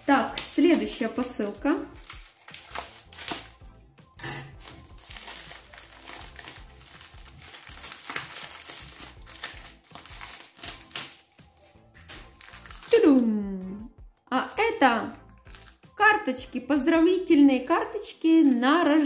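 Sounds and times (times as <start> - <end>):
packaging crinkling and rustling: 0.0 - 3.6, 4.3 - 13.2, 15.2 - 15.8, 18.0 - 19.0.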